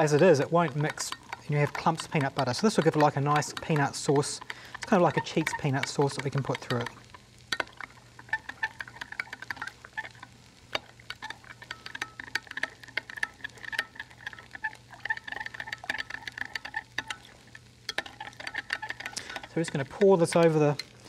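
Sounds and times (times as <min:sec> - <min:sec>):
spoon clinking against glass: 0:17.9 - 0:19.8.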